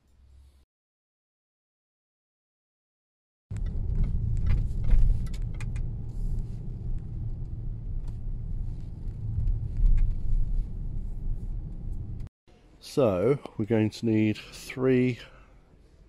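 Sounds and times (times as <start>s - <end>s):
car engine and road rumble: 3.5s - 12.3s.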